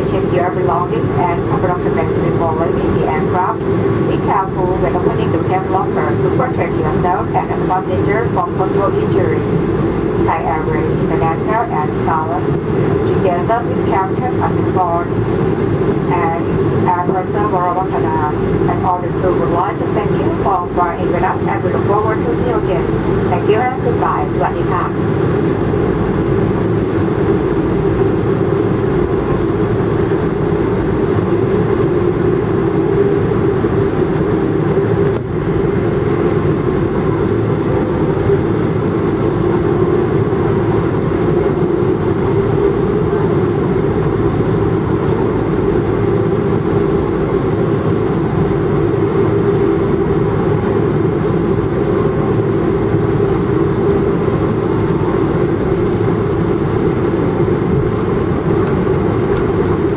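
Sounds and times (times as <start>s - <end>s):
airliner cabin engine drone: 0.0s - 59.9s.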